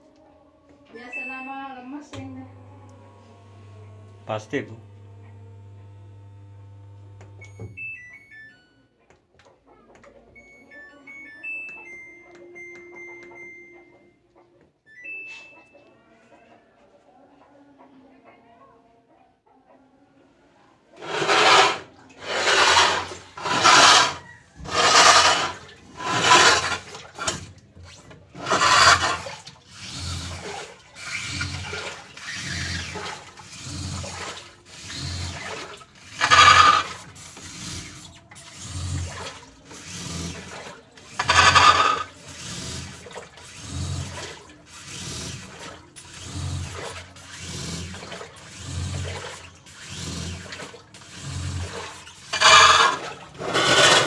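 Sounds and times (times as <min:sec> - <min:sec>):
washing machine swishing strokes: 0:21.0 - 0:54.0.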